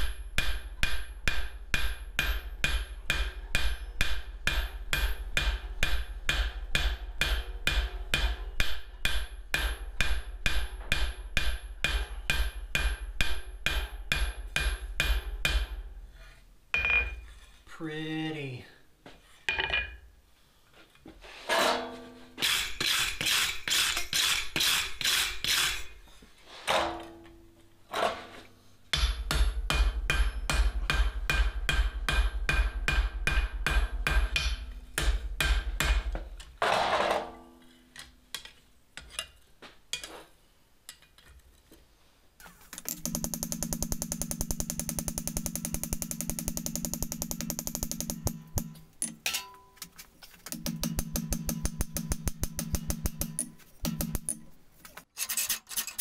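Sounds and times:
hammer striking steel on anvil: 0.0 - 15.8, 16.8 - 17.2, 28.9 - 36.1, 42.8 - 49.9, 50.5 - 54.6
anvil ringing: 42.9 - 49.8, 50.5 - 54.6.

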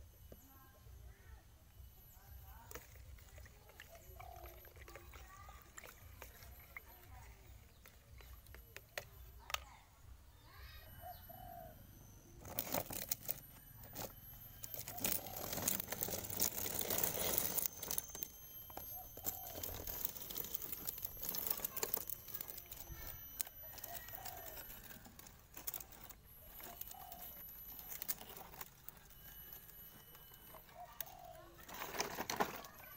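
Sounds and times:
dove cooing: 3.1 - 7.8, 10.9 - 32.9
toy truck scraping over concrete: 12.4 - 32.9.

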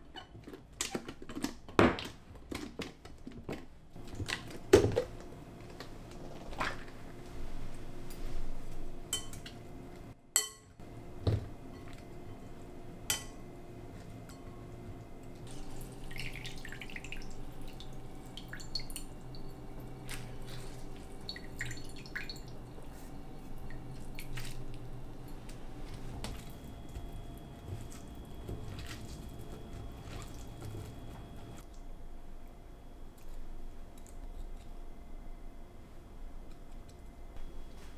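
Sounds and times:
water dripping into a bowl: 15.4 - 20.1, 21.0 - 22.6
wet squishing of cabbage: 19.8 - 31.7.

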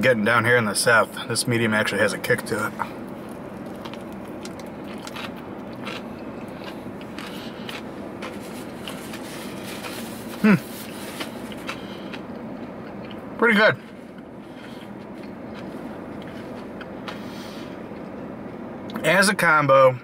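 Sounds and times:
low background hum: 0.0 - 20.0
chewing with wet mouth clicks: 3.3 - 7.9, 11.2 - 13.2
person humming mm: 10.4 - 10.7.

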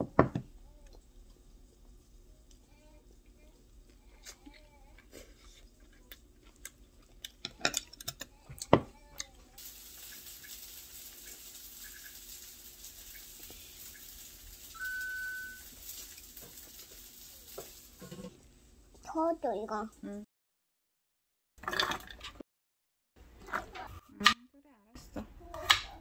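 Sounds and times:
tap water running into sink: 9.6 - 18.2
short electronic beep: 14.8 - 15.7.

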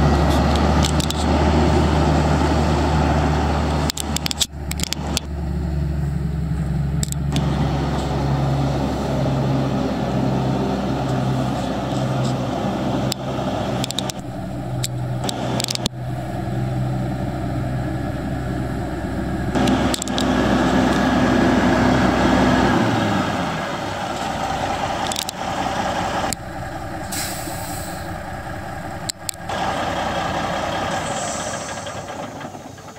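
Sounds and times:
truck diesel engine running: 0.0 - 32.9
air hiss: 26.9 - 28.8, 30.7 - 32.5.

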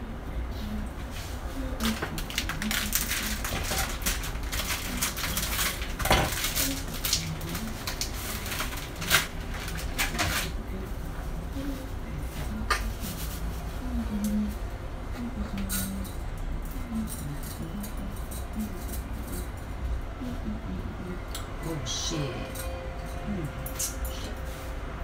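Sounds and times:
steady low hum: 0.0 - 25.0
pots and pans clattering: 2.0 - 6.6.

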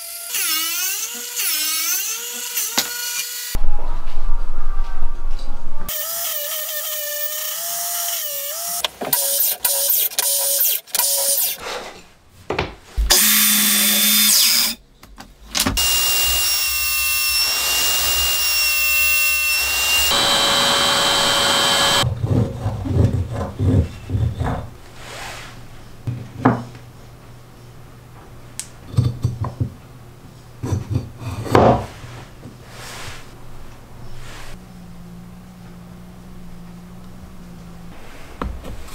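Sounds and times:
wood knocks and handling: 12.5 - 13.1
router whining while cutting wood: 13.1 - 14.8, 15.8 - 22.0.

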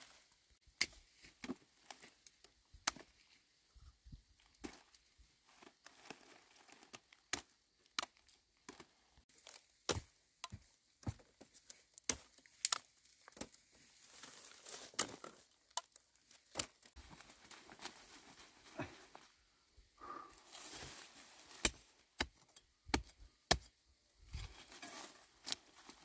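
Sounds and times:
plants being chopped: 9.5 - 11.3, 21.5 - 23.7.

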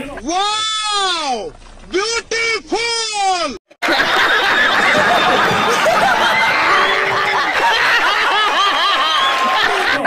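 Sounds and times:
crowd laughing: 3.8 - 10.0.

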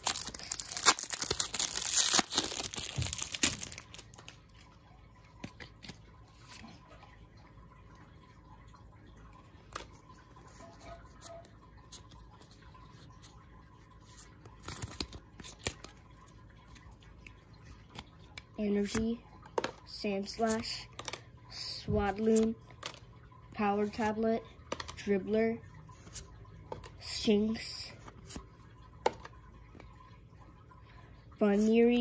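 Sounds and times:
cards clicking and rustling: 0.0 - 4.4, 14.2 - 16.0
foil wrapper tearing and crinkling: 0.0 - 4.4.

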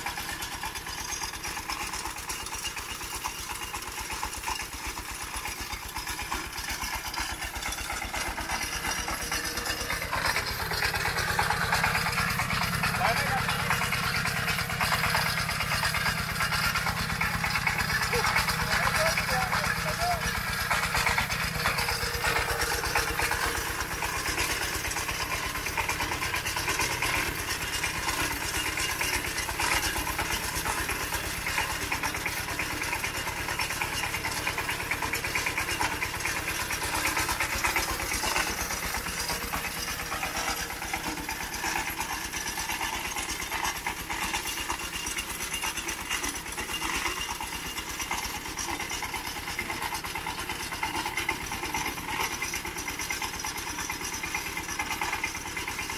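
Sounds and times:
small engine idling: 0.0 - 55.9.

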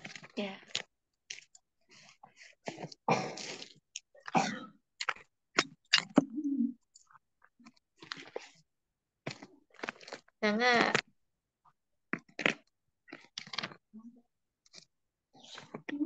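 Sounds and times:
cough-like bursts: 3.0 - 3.6, 4.3 - 4.8.

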